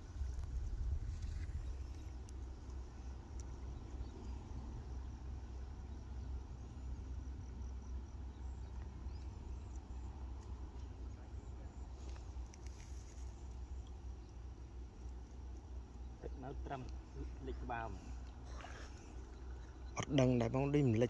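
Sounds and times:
wind rumbling on microphone: 0.0 - 5.0
insects chirping: 0.0 - 21.0.

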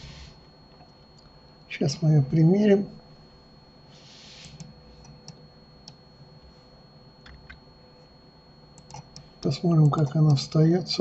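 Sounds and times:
computer mouse and keyboard clicks: 4.2 - 6.0, 8.8 - 9.3.

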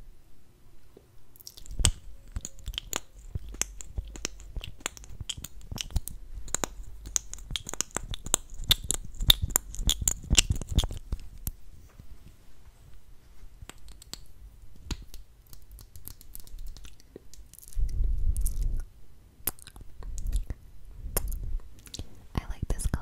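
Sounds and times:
lip smacks and tongue clicks: 1.4 - 11.6, 13.6 - 20.6, 21.2 - 22.1.

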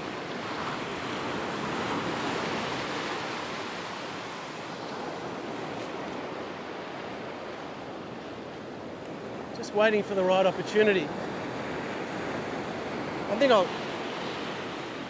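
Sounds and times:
surf breaking on beach: 9.2 - 15.0.

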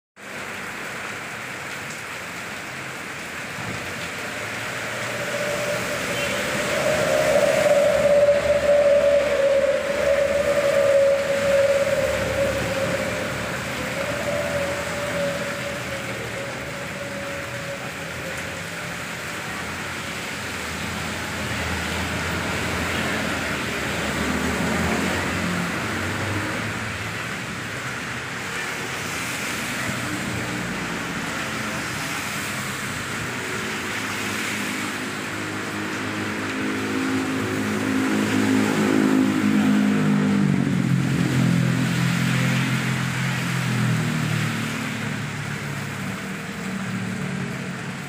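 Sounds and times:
rain falling: 0.2 - 48.0.

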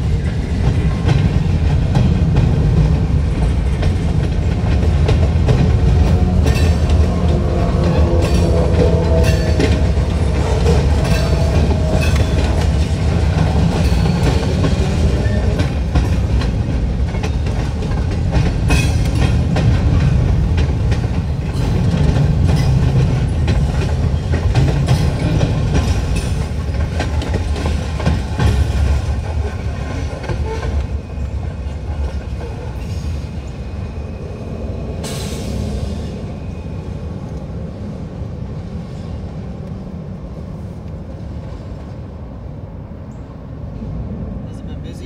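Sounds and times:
wheels clicking over rail joints: 0.0 - 33.2
train rumble: 0.0 - 45.0.

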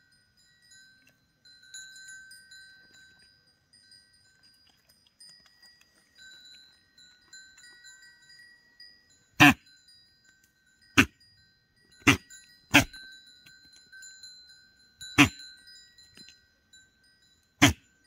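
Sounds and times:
soft metallic chime tones: 0.0 - 18.0
goat snorting: 12.8 - 13.0.

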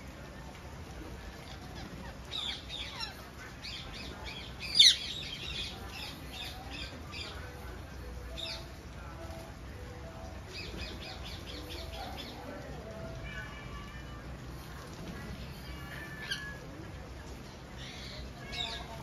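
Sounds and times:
parakeets squawking: 1.2 - 7.6, 15.4 - 16.6.

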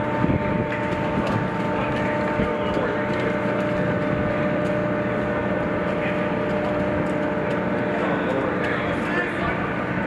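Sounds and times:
machinery drone: 0.0 - 10.0.

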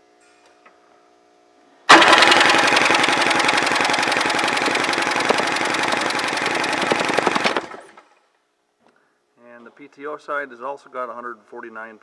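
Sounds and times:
starter cranking engine: 1.9 - 8.0.

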